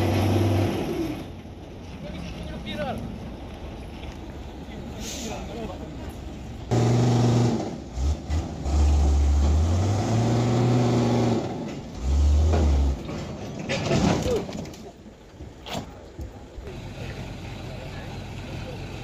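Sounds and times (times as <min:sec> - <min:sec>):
diesel engine revving: 0:00.0 - 0:01.4, 0:06.6 - 0:13.2.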